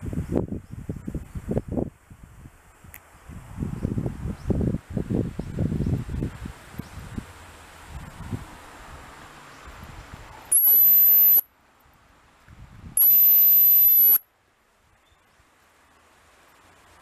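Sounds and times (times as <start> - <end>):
dog whistle blasts: 10.5 - 11.4, 13.0 - 14.2.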